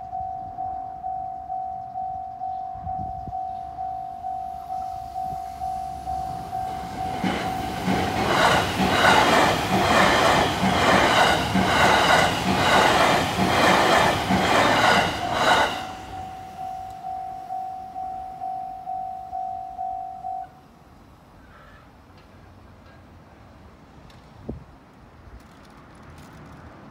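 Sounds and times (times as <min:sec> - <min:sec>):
level crossing bell ringing: 0:00.0 - 0:07.8, 0:15.1 - 0:20.6
train wheels clattering: 0:06.0 - 0:17.1.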